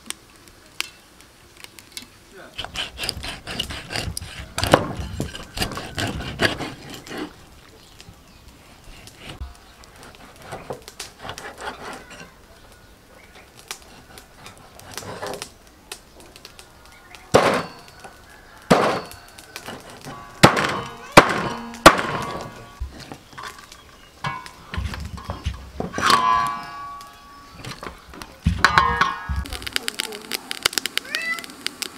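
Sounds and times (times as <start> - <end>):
blade ringing: 17.4 - 18.1, 20.0 - 22.8, 23.4 - 27.9, 28.5 - 29.6.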